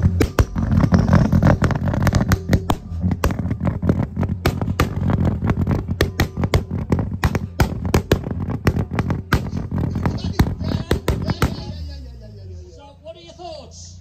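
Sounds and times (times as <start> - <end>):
car engine revving: 0.0 - 12.7
exhaust popping and crackling: 0.0 - 12.8.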